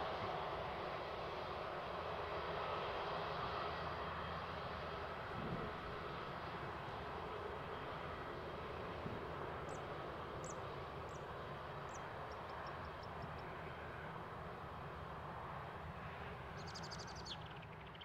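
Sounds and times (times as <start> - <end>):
small birds chirping: 9.7 - 11.3, 16.6 - 18.0.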